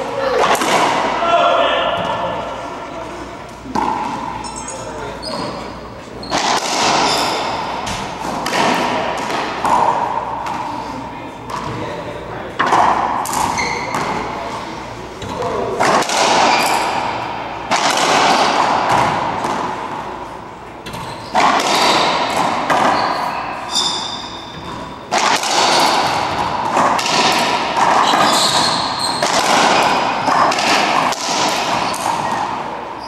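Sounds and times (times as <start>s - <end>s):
ball smacking racquets and walls: 0.0s - 1.2s, 3.6s - 33.0s
sneakers squeaking on floor: 3.8s - 8.1s, 13.3s - 14.6s, 16.4s - 17.0s, 20.8s - 25.0s, 27.9s - 30.5s, 31.7s - 33.0s.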